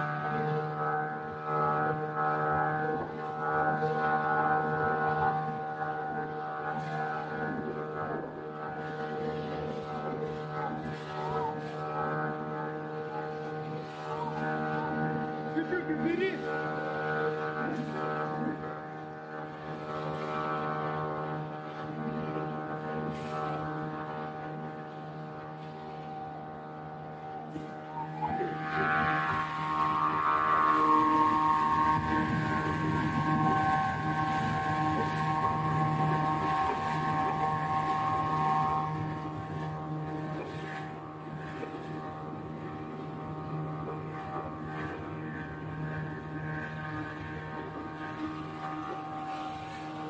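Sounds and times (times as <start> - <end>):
high engine whine: 0.0 - 50.0
motorboat engine droning: 0.0 - 50.0.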